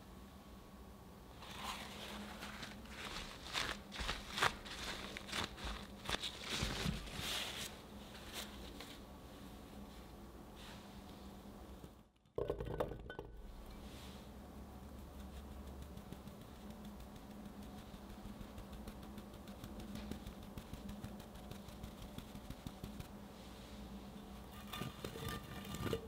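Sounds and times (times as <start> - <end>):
sugar pattering from sieve: 14.7 - 23.3.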